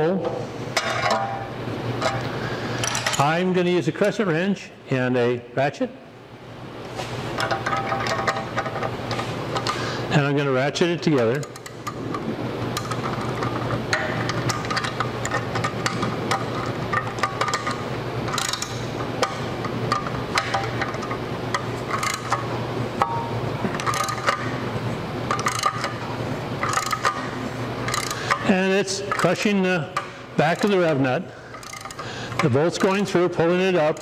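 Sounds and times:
socket ratchet clicking: 11.2s - 12.0s, 12.8s - 24.6s, 25.3s - 26.0s, 26.6s - 28.5s, 29.1s - 33.1s.

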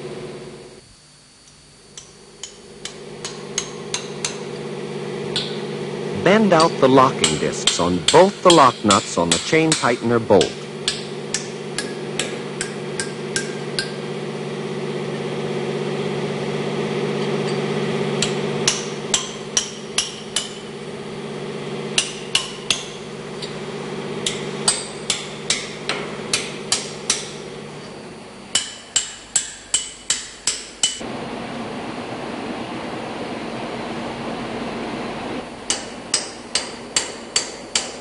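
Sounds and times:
hammer tapping a chisel: 2.0s - 4.4s, 6.6s - 14.0s, 18.2s - 20.7s, 22.0s - 23.6s, 24.2s - 27.4s, 28.5s - 31.0s, 35.7s - 38.0s.

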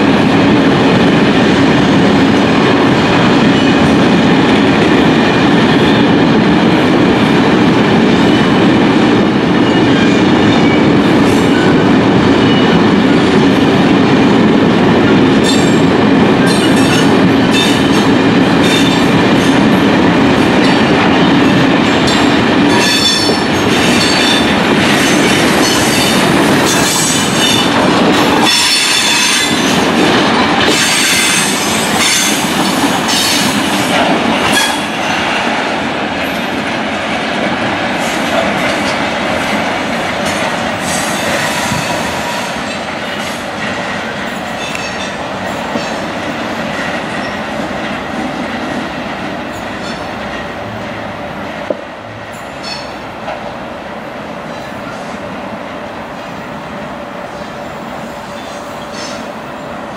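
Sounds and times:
freight train wheels rumbling on rails: 0.0s - 59.9s.

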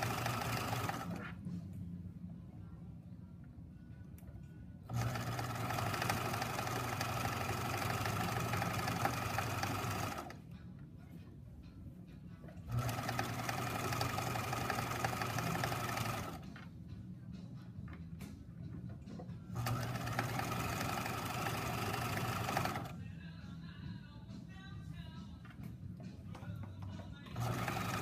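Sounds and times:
sewing machine stitching: 0.0s - 1.4s, 4.9s - 10.4s, 12.6s - 16.5s, 19.6s - 23.0s, 27.2s - 28.0s.

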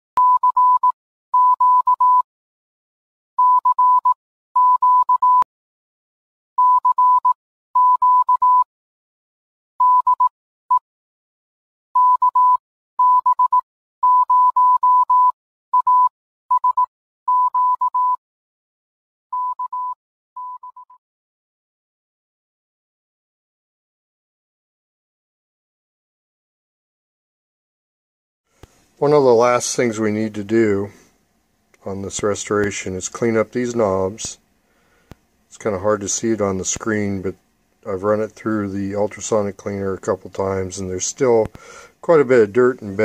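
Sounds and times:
morse code beeping: 0.2s - 2.2s, 3.4s - 5.4s, 6.6s - 8.6s, 9.8s - 10.3s, 12.0s - 18.2s, 19.3s - 21.0s.

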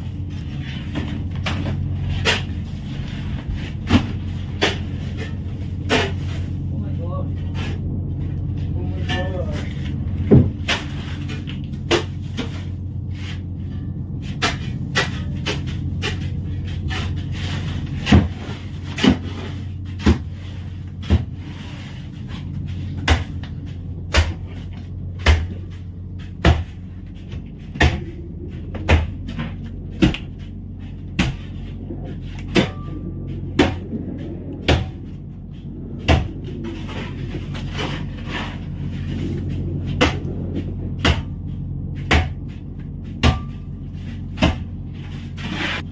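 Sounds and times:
boat engine humming: 0.0s - 45.9s.

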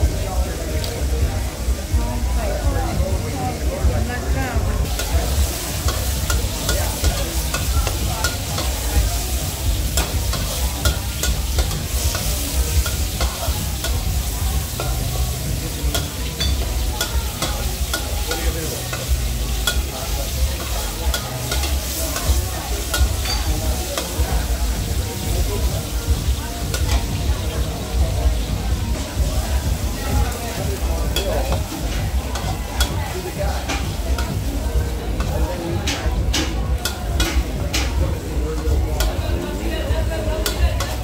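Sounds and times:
sizzling in hot oil: 0.0s - 41.0s
spatula scraping a wok: 4.8s - 27.2s.

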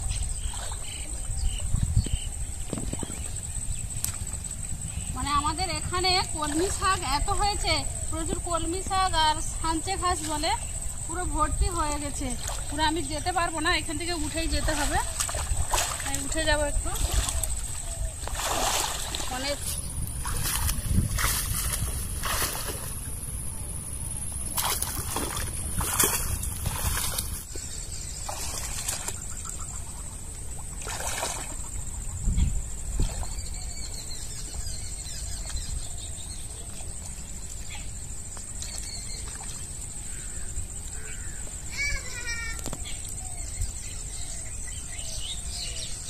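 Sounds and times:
high insect drone: 0.1s - 46.0s
water sloshing and splashing: 0.2s - 1.4s, 2.6s - 10.8s, 11.7s - 32.0s, 32.7s - 34.6s
rustling plants: 18.2s - 27.5s.

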